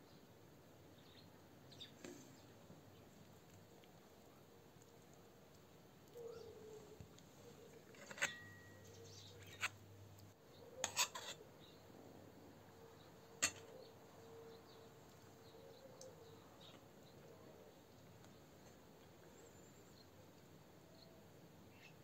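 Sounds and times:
cutlery clinking on metal plates: 7.9 - 9.7, 10.8 - 11.4, 13.4 - 13.7.

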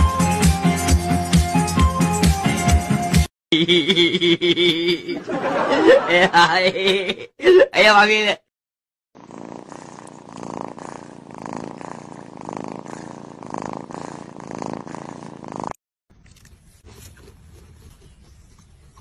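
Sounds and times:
cat purring: 9.2 - 15.8.

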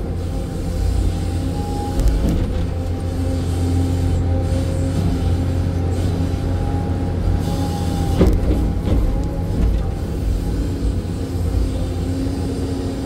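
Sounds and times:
engine whine: 0.0 - 13.0
excavator diesel engine running: 0.0 - 13.0.

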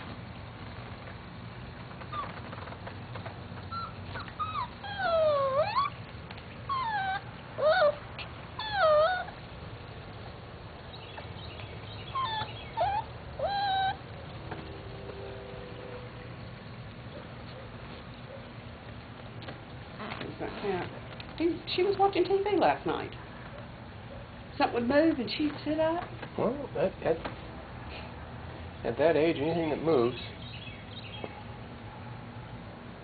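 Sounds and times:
puppy whining: 2.0 - 2.8, 3.6 - 9.4, 12.0 - 14.4.

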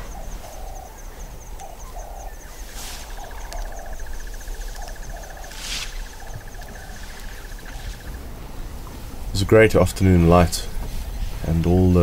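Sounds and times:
bird cooing call: 0.0 - 8.7
high insect trill: 0.0 - 12.0.

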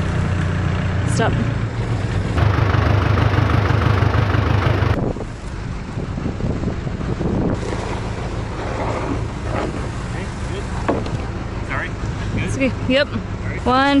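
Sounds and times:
diesel engine running loudly: 0.0 - 5.1
wind on microphone: 4.9 - 10.0.

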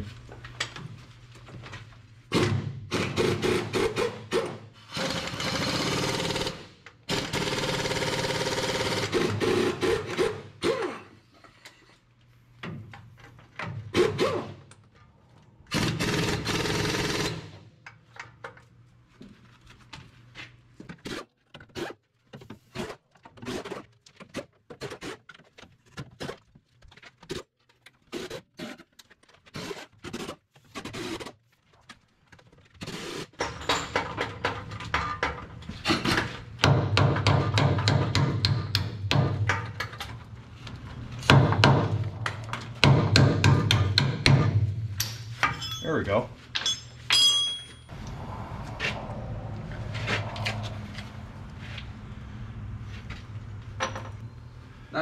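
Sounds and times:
pneumatic impact wrench hammering: 2.3 - 11.0, 13.8 - 14.6.

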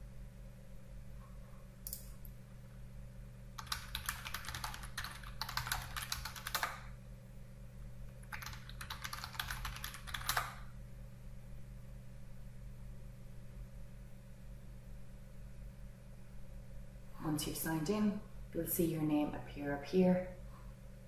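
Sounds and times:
faint low hum: 0.0 - 21.0
computer keyboard typing: 3.6 - 6.9, 8.1 - 10.7.

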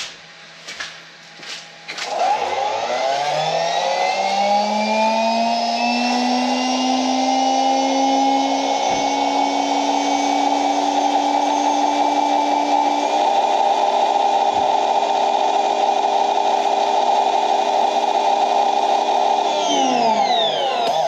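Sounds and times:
pressure washer motor whine: 1.9 - 21.0.

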